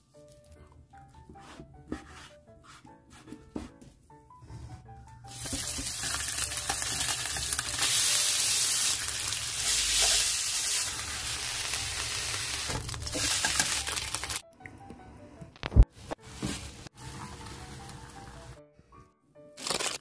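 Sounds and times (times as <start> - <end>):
chicken sizzling in a frying pan: 5.3 - 14.4.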